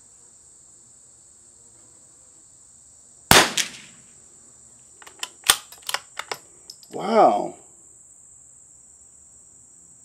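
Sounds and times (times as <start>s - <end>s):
insects chirring: 0.0s - 10.0s
rifle shot: 3.3s - 4.0s.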